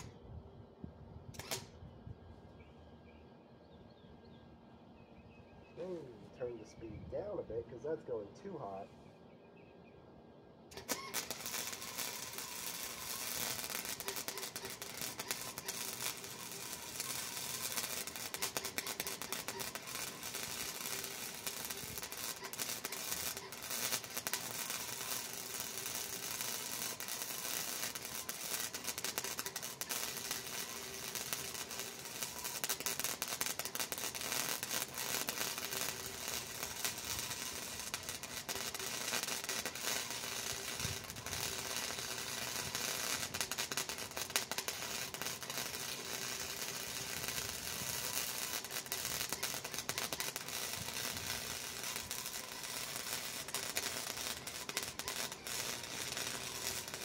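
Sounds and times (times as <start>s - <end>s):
welding arc crackling and sizzling: 1.4s - 1.7s, 10.7s - 57.0s.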